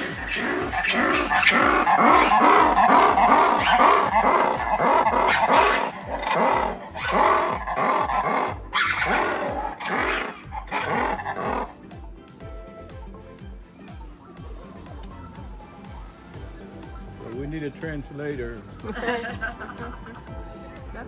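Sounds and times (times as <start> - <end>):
lemurs barking and roaring: 0.0 - 12.0.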